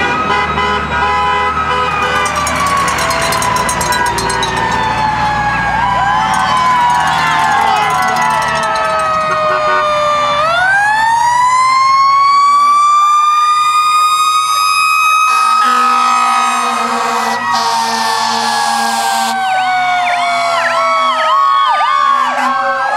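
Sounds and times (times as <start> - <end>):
fire engine siren wailing: 0.0 - 22.9
low steady horn tone: 15.3 - 19.4.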